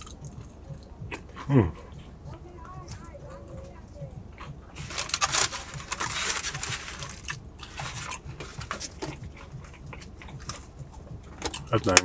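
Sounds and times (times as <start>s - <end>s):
food wrapper crinkling: 4.8s - 9.2s.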